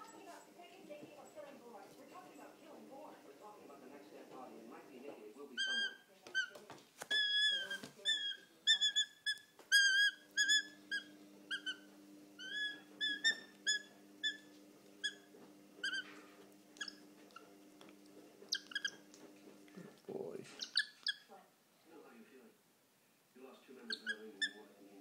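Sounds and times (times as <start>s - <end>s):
animal whining calls: 5.6s - 17.5s, 18.5s - 19.1s, 20.5s - 21.3s, 23.9s - 24.6s.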